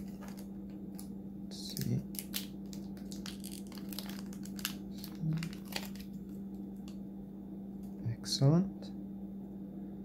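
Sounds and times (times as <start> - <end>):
packaging crinkling: 0.0 - 7.0
steady low hum: 0.0 - 10.0.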